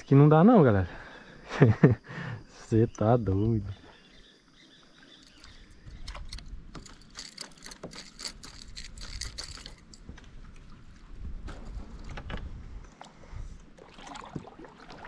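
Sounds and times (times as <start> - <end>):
fishing tackle clicks and rattles: 5.1 - 10.8.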